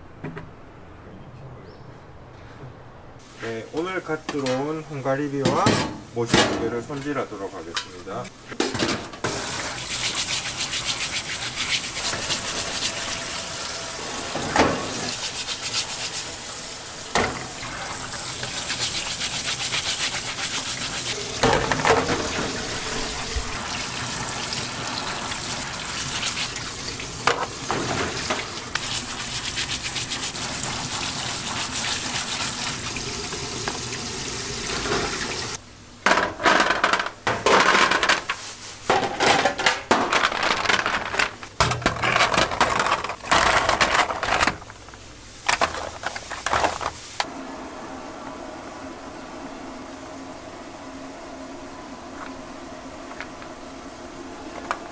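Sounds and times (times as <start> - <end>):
water spraying from sink sprayer: 9.2 - 35.6
brush scrubbing shells: 9.7 - 13.3, 15.0 - 16.4, 18.0 - 21.3, 28.7 - 32.9
clams clattering on metal tray: 38.9 - 44.8.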